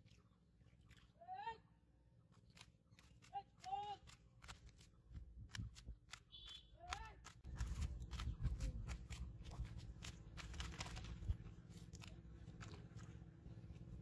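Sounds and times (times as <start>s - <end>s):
fish flapping: 2.2s - 14.0s.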